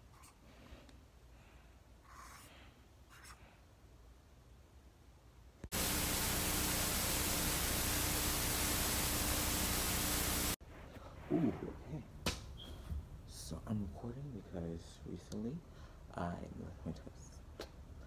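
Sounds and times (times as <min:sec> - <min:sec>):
tv static hiss: 0:05.7 - 0:10.6.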